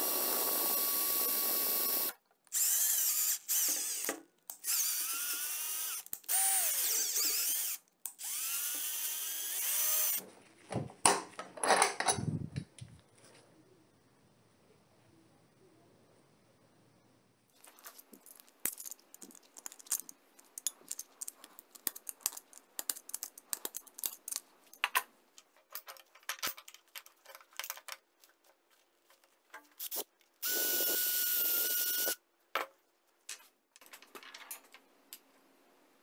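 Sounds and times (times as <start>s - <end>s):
clicks taps and rubbing of handling: 17.6s - 30.3s
high-pitched gas hissing whine: 30.4s - 32.2s.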